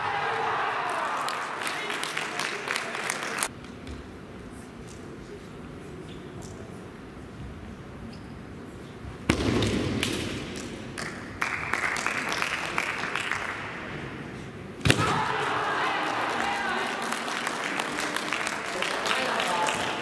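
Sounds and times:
spectators clapping: 0.8s - 3.5s, 10.6s - 13.9s, 15.4s - 20.0s.

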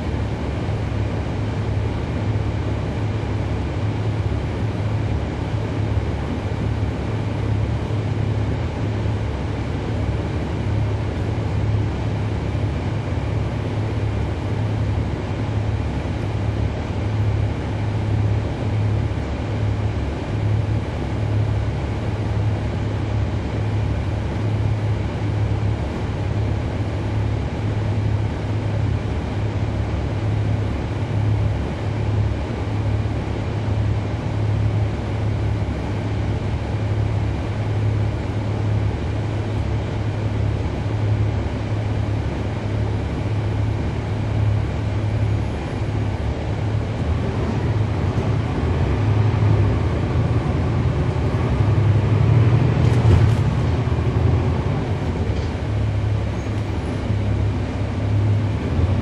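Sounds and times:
bus diesel engine droning: 0.0s - 59.0s
road noise: 41.4s - 59.0s.

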